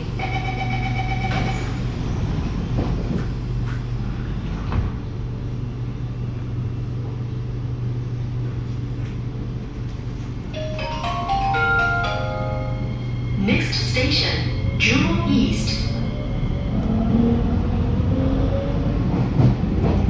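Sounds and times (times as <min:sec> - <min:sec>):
train low hum: 0:00.0 - 0:20.0
door warning beeps: 0:00.2 - 0:01.8
train doors sliding shut: 0:01.2 - 0:05.2.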